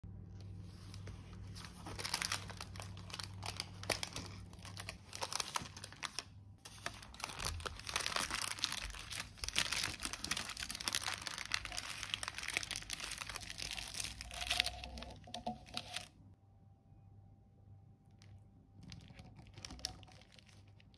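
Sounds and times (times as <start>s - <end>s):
paper crackling and rustling: 0.4s - 16.1s, 18.2s - 20.9s.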